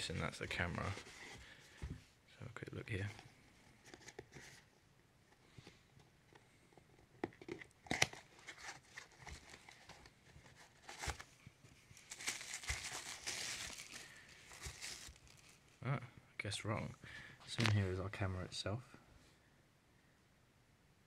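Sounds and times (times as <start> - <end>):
plastic bag crinkling: 12.0 - 15.7.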